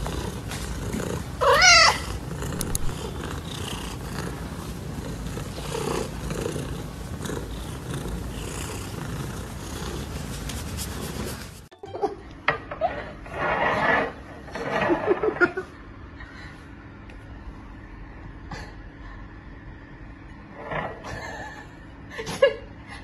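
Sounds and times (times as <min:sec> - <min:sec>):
cat purring: 0:00.0 - 0:11.6
cat meowing: 0:01.4 - 0:02.1.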